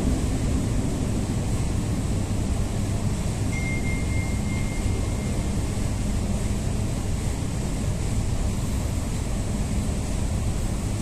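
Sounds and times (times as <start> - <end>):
train rumbling in tunnel: 0.0 - 11.0
thin high tone: 3.5 - 5.6.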